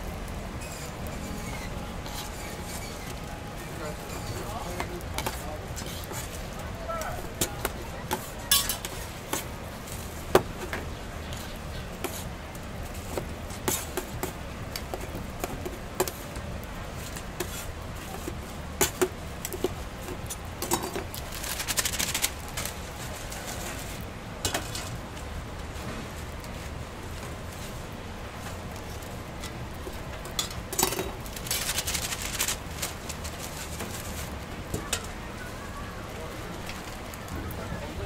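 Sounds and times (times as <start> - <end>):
spatula scraping on griddle: 0.6 - 10.7, 11.3 - 12.2, 12.8 - 16.4, 17.0 - 25.0
paper rustle: 20.7 - 24.9, 30.8 - 35.6.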